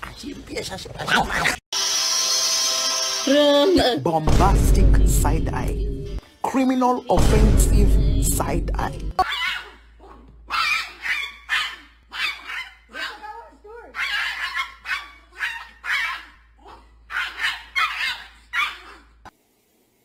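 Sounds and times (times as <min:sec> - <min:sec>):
small dog yapping: 0:09.2 - 0:19.1.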